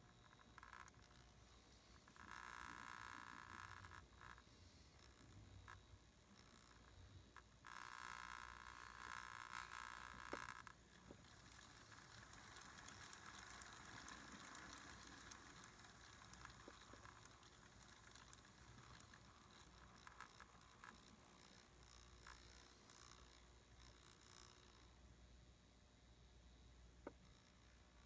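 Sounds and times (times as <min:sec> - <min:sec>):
motor and gearing whirring: 0:08.2 - 0:24.9
wheels clicking and rattling: 0:09.0 - 0:23.4.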